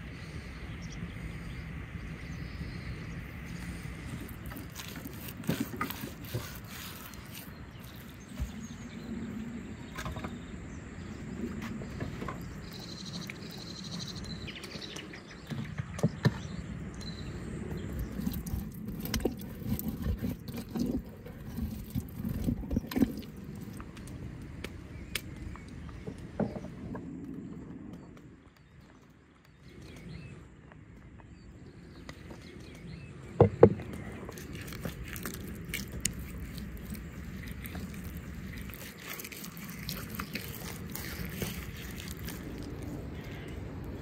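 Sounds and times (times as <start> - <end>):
hands rubbing wet meat: 3.6 - 8.6, 34.3 - 43.9.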